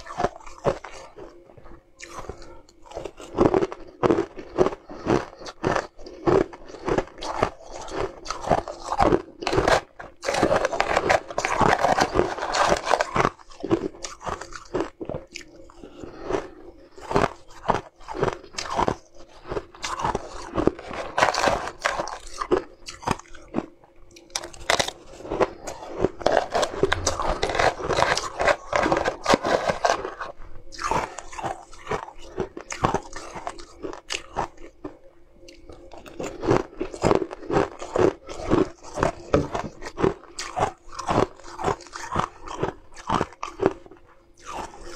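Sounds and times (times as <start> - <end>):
ice being crunched: 8.3 - 14.8, 19.8 - 23.2, 24.3 - 34.4.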